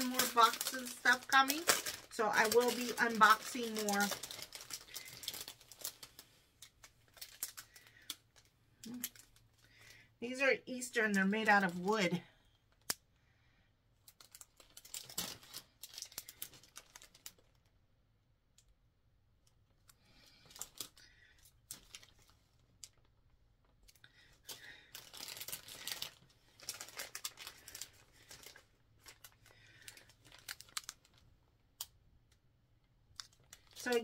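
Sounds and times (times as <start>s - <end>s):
plastic bags crinkling: 0.0s - 9.9s, 14.0s - 17.8s, 20.1s - 31.3s, 33.1s - 34.0s.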